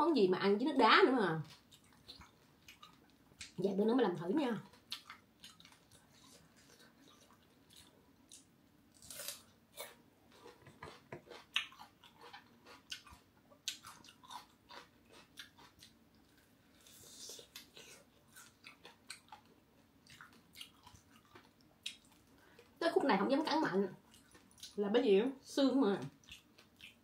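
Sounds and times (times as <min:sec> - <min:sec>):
crunchy chewing and biting: 0:04.8 - 0:22.2.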